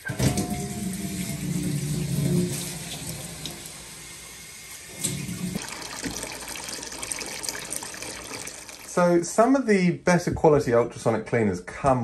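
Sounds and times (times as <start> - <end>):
tap water splashing into jar: 5.0 - 6.4.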